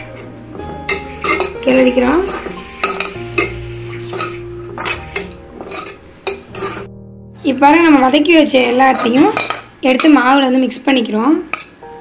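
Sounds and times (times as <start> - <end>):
steel ladle scraping a pan: 0.0 - 6.9, 8.6 - 10.1, 11.4 - 11.8.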